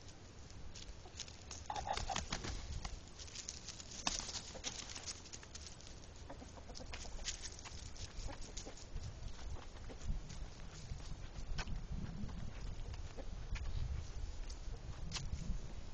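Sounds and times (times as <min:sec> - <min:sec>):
crunching of dry leaves: 0:00.0 - 0:11.4.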